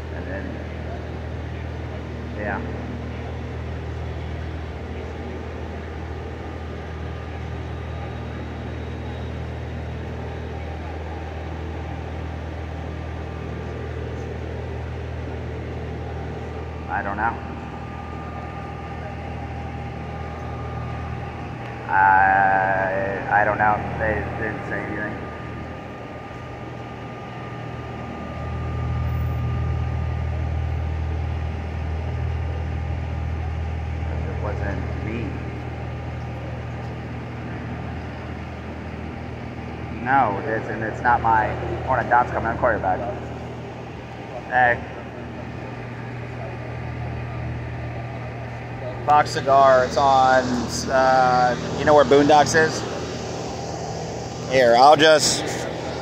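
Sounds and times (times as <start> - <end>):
faint steady whine: 0.0 - 56.0
vehicle engine idling: 0.0 - 56.0.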